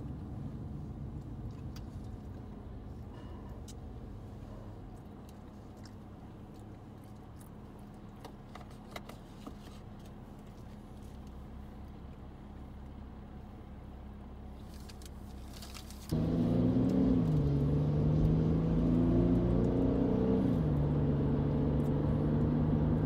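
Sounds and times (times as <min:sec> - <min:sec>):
car engine idling in cabin: 0:00.0 - 0:18.4.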